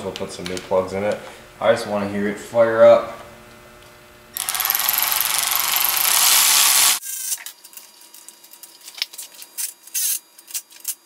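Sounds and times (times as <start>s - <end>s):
cordless power tool whirring: 4.4s - 7.0s.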